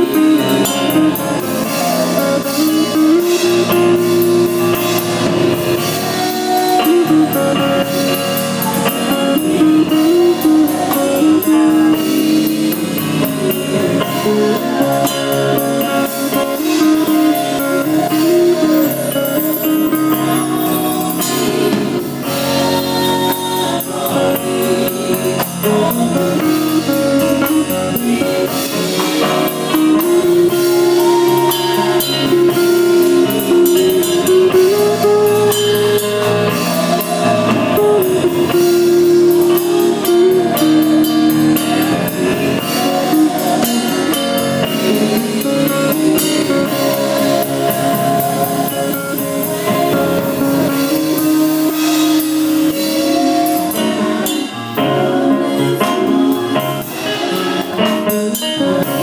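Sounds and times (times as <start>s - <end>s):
drum kit cymbal beat: 0.0s - 59.0s
guitar melody: 0.0s - 59.0s.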